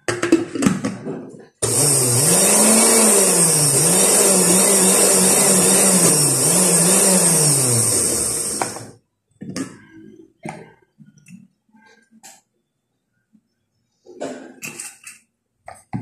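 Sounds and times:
electric blender motor running: 1.6 - 9.0.

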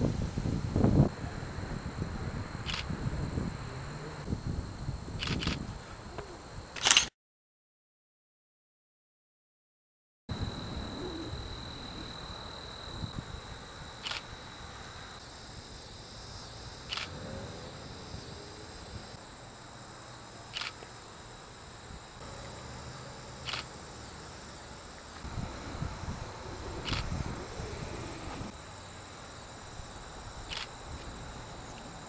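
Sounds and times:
crickets and insects chirring: 0.0 - 7.1, 10.3 - 32.0
camera shutter clicks: 2.7 - 2.9, 5.2 - 5.6, 6.8 - 7.1, 14.0 - 14.2, 20.5 - 20.8, 23.4 - 23.7, 26.8 - 27.1, 30.5 - 30.7
low rumble: 25.3 - 28.5.

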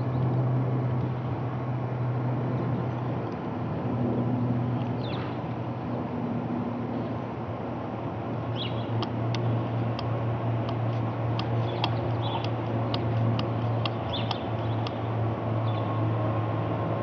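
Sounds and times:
low propeller drone: 0.0 - 17.0
bird chirps: 8.6 - 9.0, 11.5 - 12.6, 13.6 - 15.0
sharp ticks: 9.0 - 15.0.

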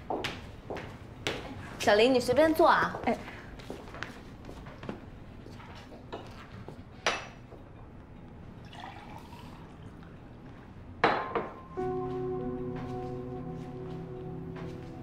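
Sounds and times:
drink poured into a glass: 8.6 - 10.1
glass clinking: 11.0 - 11.7.

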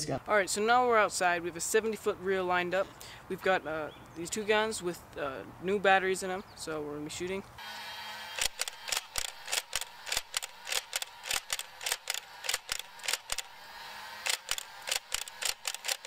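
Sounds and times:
toy blaster motor hum: 7.6 - 16.0
sharp blaster clicks: 8.4 - 13.5, 14.2 - 16.0.

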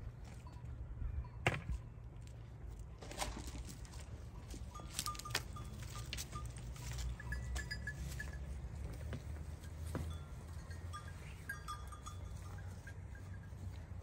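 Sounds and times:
sheep shuffling rumble: 2.2 - 14.0
thin high clinks: 9.6 - 13.7.

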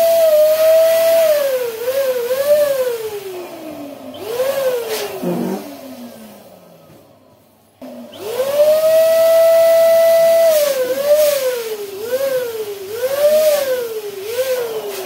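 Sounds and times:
balloon deflating squeal: 4.2 - 5.7.

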